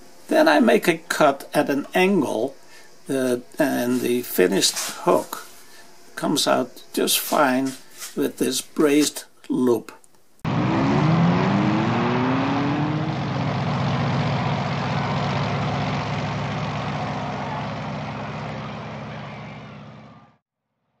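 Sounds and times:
loud engine-like drone: 10.5s - 20.4s.

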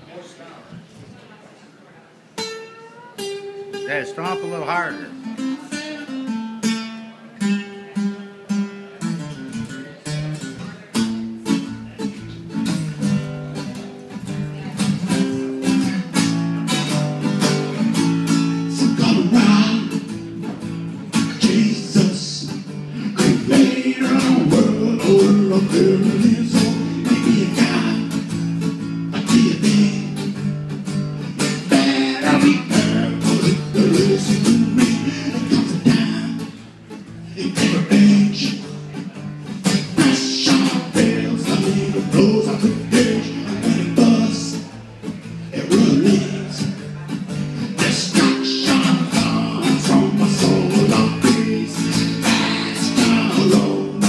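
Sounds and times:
acoustic guitar: 0.0s - 54.0s
man singing: 18.6s - 20.2s, 21.1s - 28.4s, 29.1s - 30.5s, 31.4s - 36.6s, 37.2s - 38.9s, 39.7s - 44.8s, 45.5s - 47.0s, 47.6s - 54.0s.

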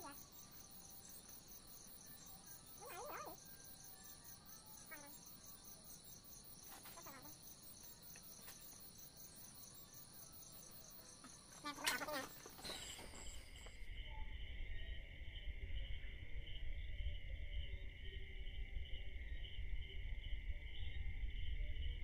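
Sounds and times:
night insects chirring: 0.0s - 22.0s.

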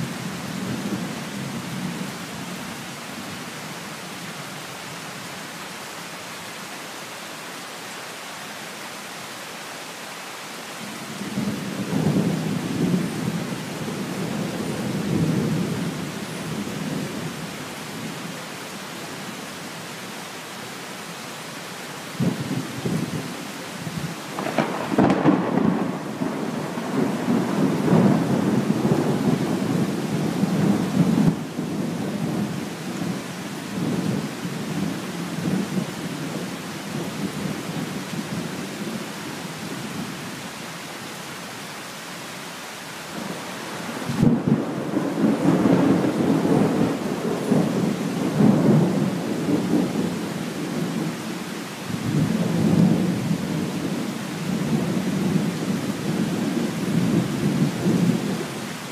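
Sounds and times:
steady rain: 0.0s - 58.9s
thunder rolling: 24.3s - 31.4s, 44.1s - 50.1s.

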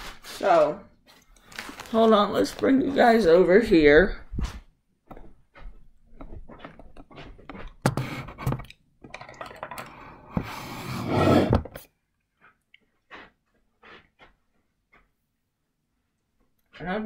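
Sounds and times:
rubbing against microphone: 4.1s - 8.6s.

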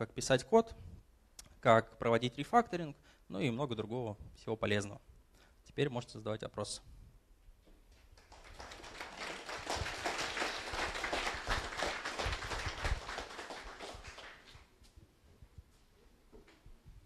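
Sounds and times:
audience applauding: 8.2s - 14.7s.

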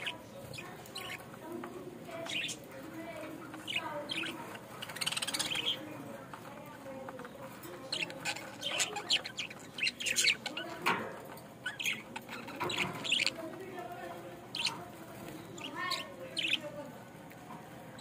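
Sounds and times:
budgerigars chattering: 0.0s - 1.3s, 2.2s - 2.7s, 3.4s - 6.0s, 7.2s - 10.9s, 11.6s - 13.5s, 15.4s - 16.7s.

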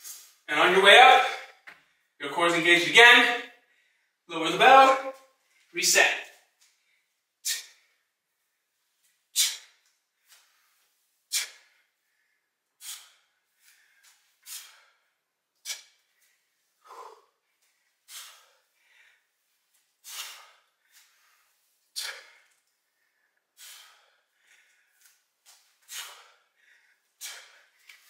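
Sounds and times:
man breathing hard: 9.3s - 28.0s.

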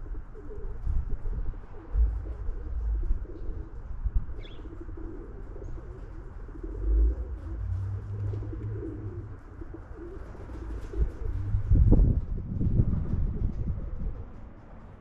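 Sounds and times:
pigeons cooing: 0.0s - 12.2s
low rumble: 0.8s - 15.0s.

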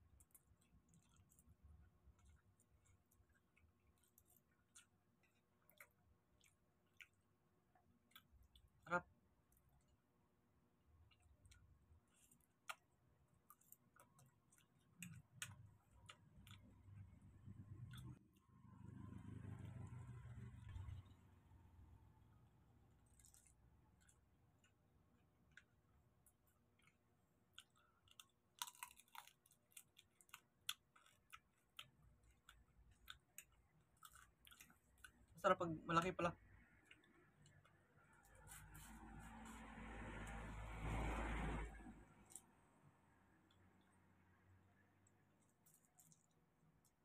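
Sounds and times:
chewing and eating sounds: 0.0s - 21.4s, 22.9s - 40.9s, 41.5s - 47.0s.

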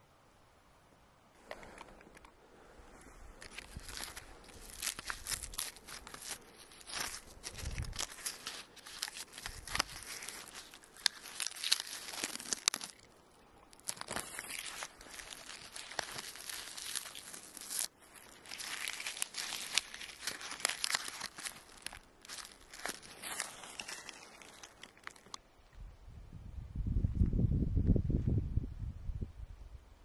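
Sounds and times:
dry bark crackling: 3.2s - 25.6s
bark peeling and tearing: 3.4s - 13.1s, 13.7s - 25.4s.

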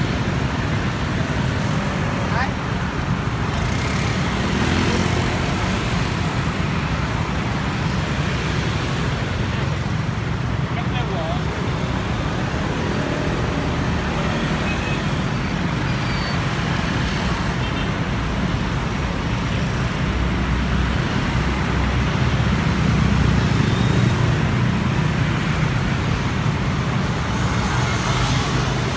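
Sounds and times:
cars passing: 0.0s - 28.9s
road noise: 0.0s - 28.9s
motor scooters passing: 0.3s - 17.5s.

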